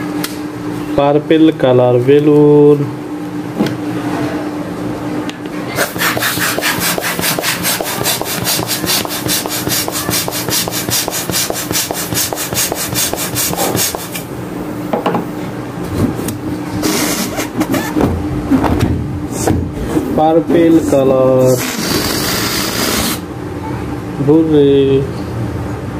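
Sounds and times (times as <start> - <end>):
balloon pump rasping strokes: 5.8 - 14.2, 16.8 - 17.8, 21.5 - 23.2.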